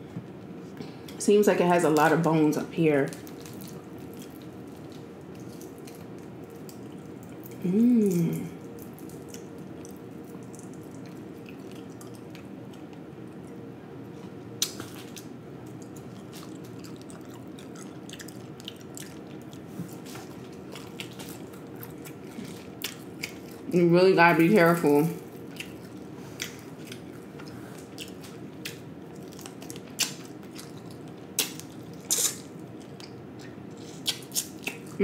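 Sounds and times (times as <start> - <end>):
low background hum: 0.0 - 35.0
chewing crispy fish: 3.1 - 13.6, 14.2 - 23.7, 25.2 - 35.0
person saying mmm: 7.6 - 8.6.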